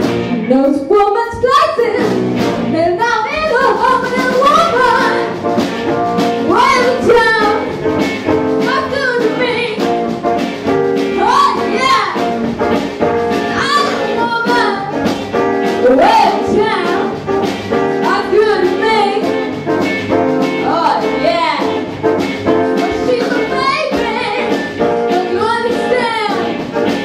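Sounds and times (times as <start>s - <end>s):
jazz band playing: 0.0s - 27.0s
woman singing: 0.4s - 5.4s, 6.5s - 7.7s, 8.6s - 9.8s, 13.6s - 15.0s, 15.8s - 17.2s, 18.0s - 19.5s, 20.6s - 21.8s, 22.8s - 26.6s.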